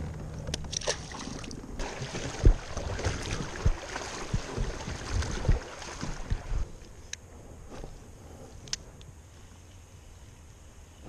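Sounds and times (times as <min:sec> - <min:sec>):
river water rushing: 0:00.8 - 0:06.6.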